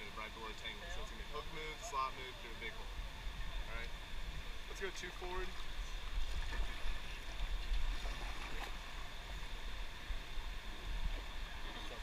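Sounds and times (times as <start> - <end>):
rushing river water: 0.0 - 12.0
paddle strokes in water: 5.1 - 12.0.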